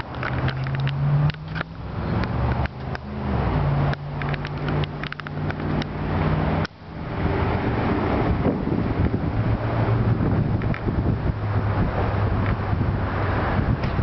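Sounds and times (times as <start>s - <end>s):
small clicks: 0.0s - 3.1s, 3.9s - 5.9s
outdoor noise: 0.0s - 14.0s
vehicle engine humming: 0.0s - 14.0s.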